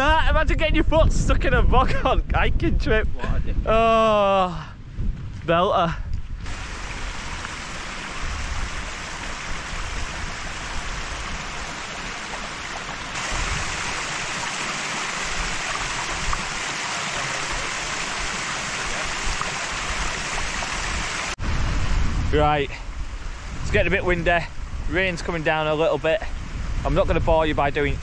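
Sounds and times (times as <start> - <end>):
wind rumble on microphone: 0.0 - 14.4, 17.5 - 28.0
waterfall and stream rushing: 6.4 - 22.0.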